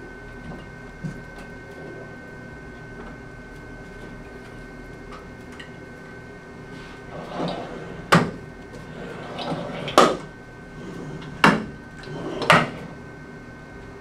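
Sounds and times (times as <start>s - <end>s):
medical arm sliding: 6.8s - 13.0s.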